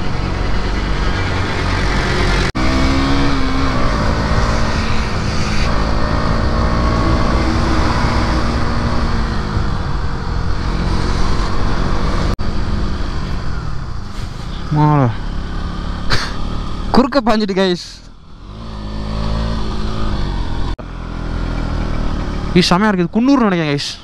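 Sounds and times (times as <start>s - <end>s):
motorcycle engine running: 18.0s - 23.2s.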